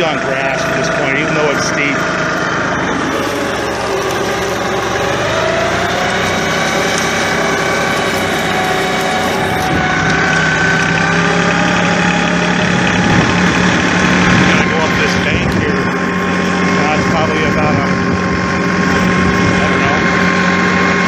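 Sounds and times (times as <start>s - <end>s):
tractor diesel engine under load: 0.0s - 21.0s.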